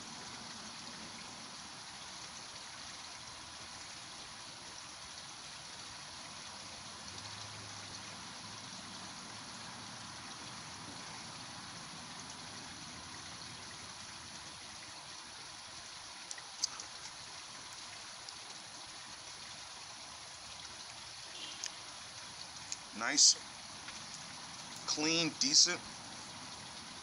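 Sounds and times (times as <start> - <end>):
outdoor background hiss: 0.0 - 27.0
faint clicks: 21.5 - 21.8, 22.6 - 22.9.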